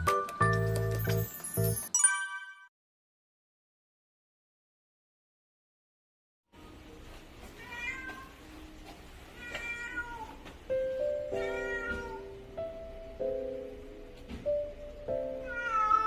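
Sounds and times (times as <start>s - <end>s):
cat meowing: 7.6s - 8.4s, 9.3s - 10.4s, 11.3s - 12.4s, 15.3s - 16.0s.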